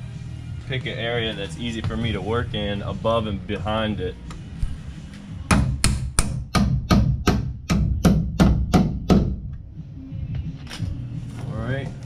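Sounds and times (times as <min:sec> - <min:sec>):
hammer striking nails: 0:05.5 - 0:09.4.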